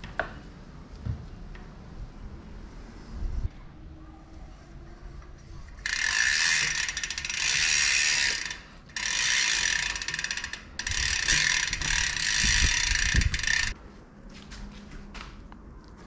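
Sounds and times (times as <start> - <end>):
bike freehub ratchet buzzing: 5.8 - 13.8.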